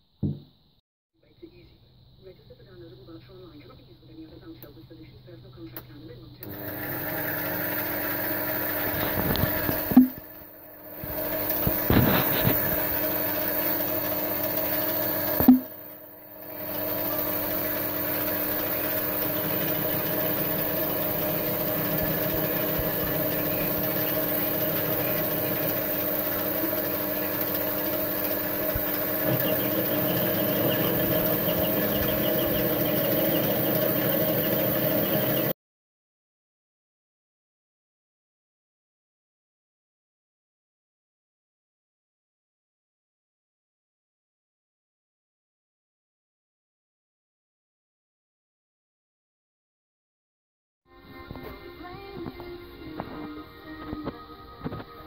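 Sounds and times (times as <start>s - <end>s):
metal lathe running: 6.4s - 35.5s.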